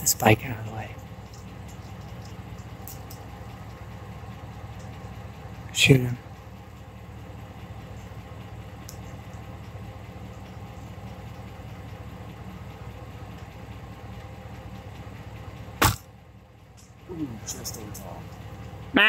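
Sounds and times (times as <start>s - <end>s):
steady low rumble: 0.0s - 19.0s
bow shot snap: 15.8s - 16.1s.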